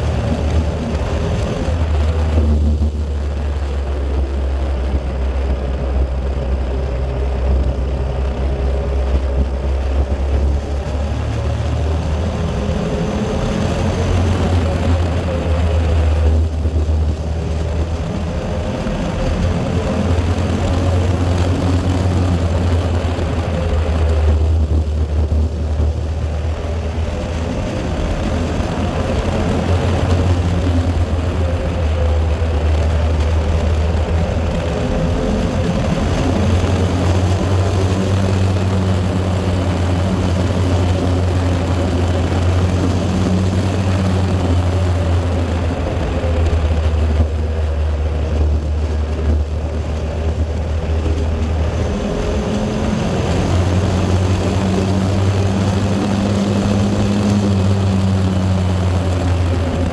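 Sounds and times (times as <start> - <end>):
road noise: 0.0 - 59.9
vehicle engine rumble: 0.0 - 59.9.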